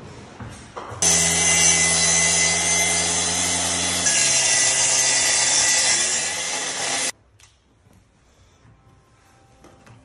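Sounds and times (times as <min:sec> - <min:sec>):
track saw motor whine: 0:01.0 - 0:07.1.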